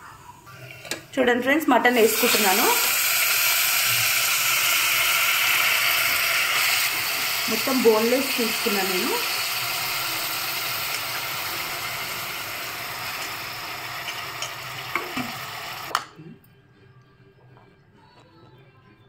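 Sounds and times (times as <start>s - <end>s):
meat sizzling in hot oil: 1.9s - 15.9s.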